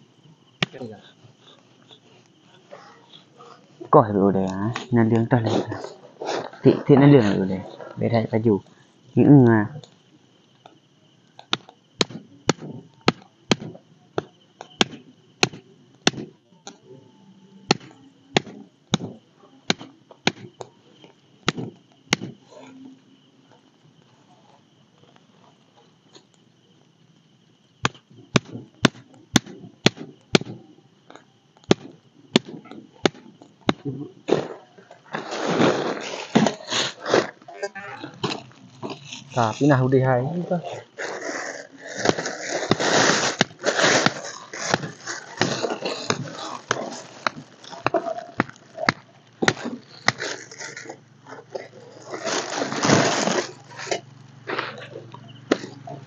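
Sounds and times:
machete chopping firewood: 0:11.4 - 0:16.3, 0:17.7 - 0:20.6, 0:21.4 - 0:22.4, 0:27.8 - 0:30.6, 0:31.6 - 0:34.5, 0:42.0 - 0:50.5.

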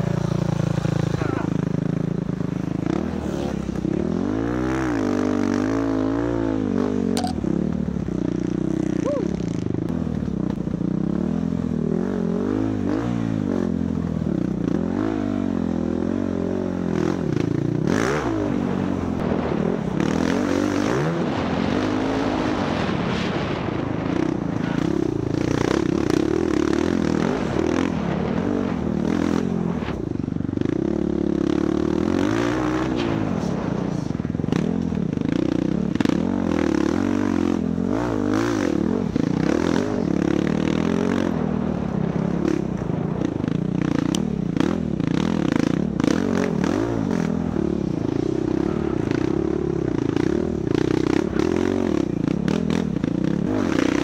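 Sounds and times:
dirt bike engine revving: 0:00.0 - 0:09.6, 0:30.6 - 0:54.0
bike rattling and scraping: 0:23.2 - 0:54.0.

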